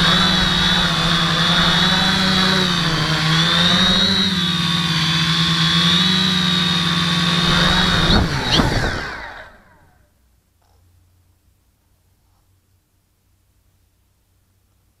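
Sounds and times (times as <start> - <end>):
quadcopter motors whining: 0.0 - 10.1
drone landing knocks: 7.4 - 9.6.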